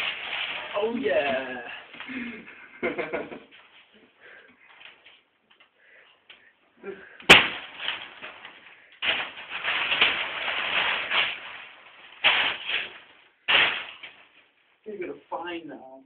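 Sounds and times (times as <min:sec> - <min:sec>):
paper sheeting tearing and crumpling: 0:00.0 - 0:02.3, 0:07.2 - 0:14.7
sharp bang: 0:07.2 - 0:08.0.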